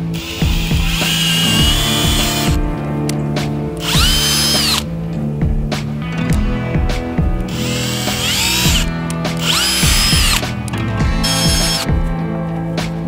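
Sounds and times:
cordless drill whining: 0:00.0 - 0:02.6, 0:03.8 - 0:04.9, 0:07.5 - 0:10.5, 0:11.2 - 0:11.9.

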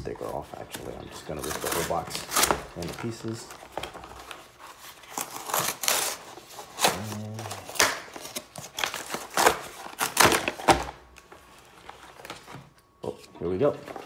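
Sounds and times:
cardboard box tearing: 0:01.4 - 0:03.0, 0:03.8 - 0:10.9.

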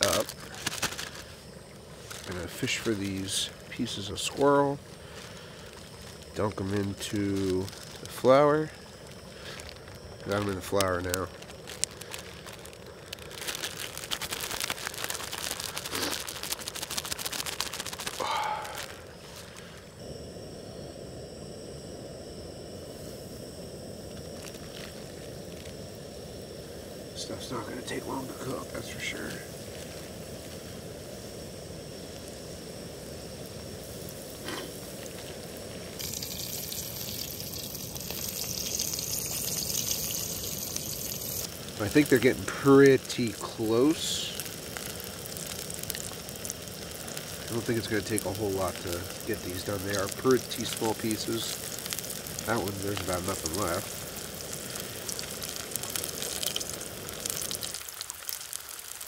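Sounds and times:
meat frying in oil: 0:00.0 - 0:19.8, 0:23.6 - 0:59.0
plastic bag crinkling: 0:00.0 - 0:19.9, 0:24.1 - 0:25.8, 0:34.4 - 0:59.0
low steady rush: 0:18.1 - 0:56.0.

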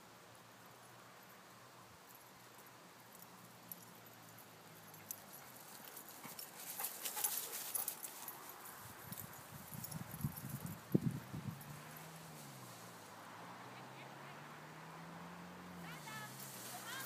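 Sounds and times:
grass swishing: 0:15.9 - 0:17.0.

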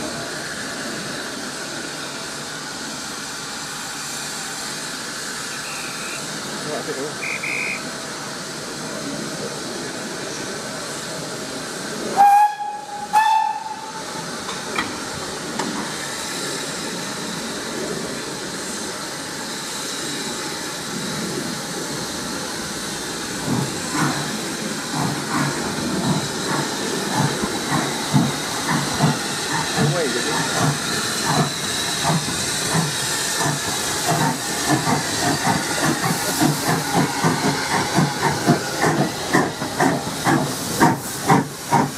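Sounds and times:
steam locomotive hissing: 0:00.0 - 0:41.9
steam whistle blasts: 0:07.2 - 0:07.9, 0:12.1 - 0:14.0.

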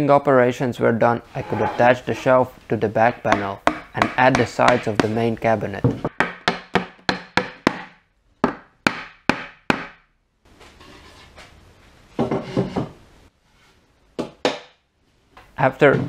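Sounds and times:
wood scraping and sliding: 0:01.3 - 0:02.4, 0:10.6 - 0:11.6
sharp wooden knocks: 0:03.3 - 0:05.2, 0:05.8 - 0:10.0.

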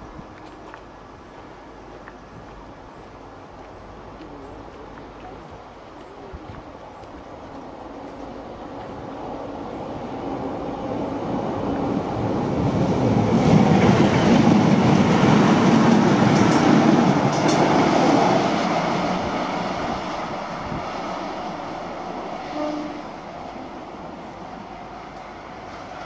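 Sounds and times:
steam train passing at speed: 0:06.6 - 0:26.0.

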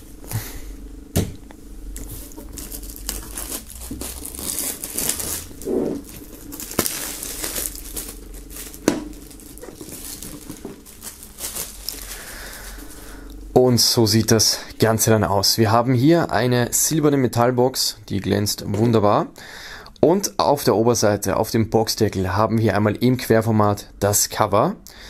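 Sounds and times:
plastic film crinkling and tearing: 0:02.0 - 0:13.4.

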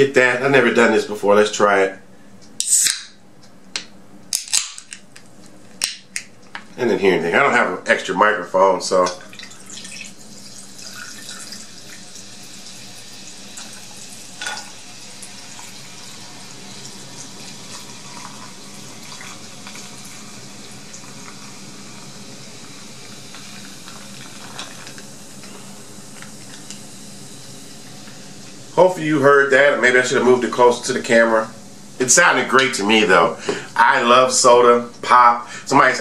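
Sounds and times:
liquid pouring into glass: 0:09.2 - 0:25.0
cola fizzing over ice: 0:09.2 - 0:28.2.

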